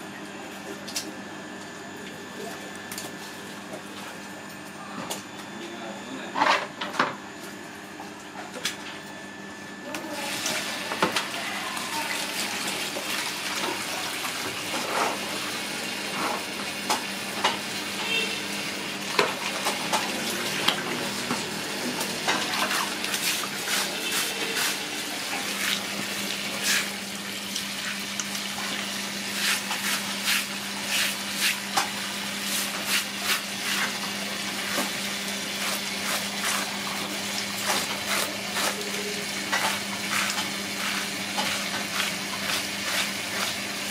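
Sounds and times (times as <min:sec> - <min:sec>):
hose water running onto concrete: 0:10.0 - 0:15.4, 0:18.0 - 0:43.9.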